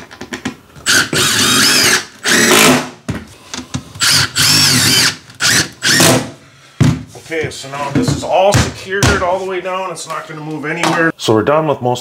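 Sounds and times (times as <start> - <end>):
cordless drill driving screws: 0.8 - 2.8, 4.0 - 6.2.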